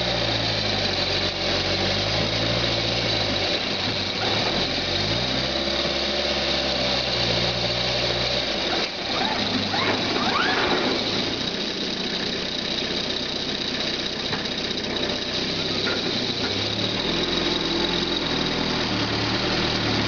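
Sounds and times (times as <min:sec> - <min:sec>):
short rising squeals: 0:08.7 - 0:11.5.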